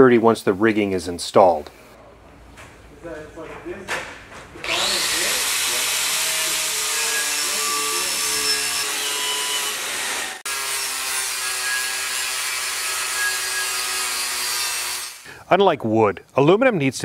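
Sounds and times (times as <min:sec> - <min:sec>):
angle grinder grinding metal: 0:04.6 - 0:15.3.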